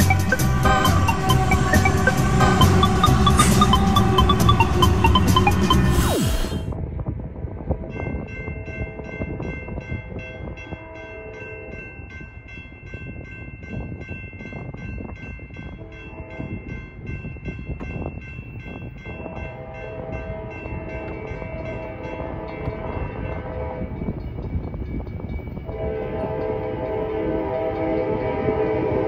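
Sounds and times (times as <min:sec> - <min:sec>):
crossing bells ringing: 0:00.0 - 0:06.2, 0:07.9 - 0:29.0
distant train horn: 0:22.2 - 0:24.1, 0:25.7 - 0:29.0.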